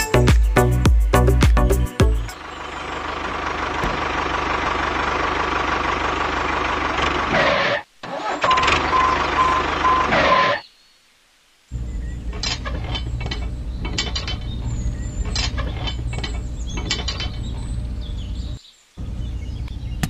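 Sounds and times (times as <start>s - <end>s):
tractor engine running: 1.2s - 10.6s, 11.8s - 20.0s
pulsing beep: 8.4s - 10.6s.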